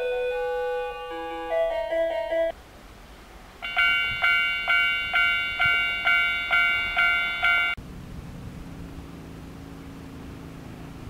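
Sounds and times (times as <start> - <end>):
electronic chime melody: 0.0 - 2.5, 3.6 - 7.8
level-crossing warning bell: 0.0 - 2.5, 3.6 - 7.8.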